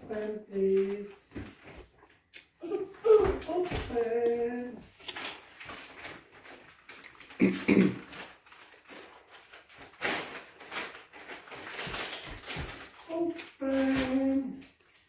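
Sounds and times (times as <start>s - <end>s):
chewing salad: 2.0s - 3.0s, 4.2s - 5.4s, 6.8s - 8.2s.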